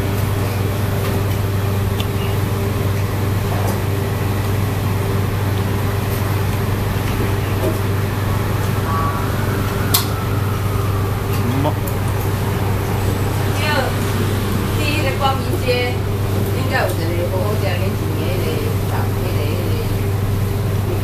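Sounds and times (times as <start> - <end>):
low machinery hum: 0.0 - 21.0
faint voices: 6.8 - 20.2.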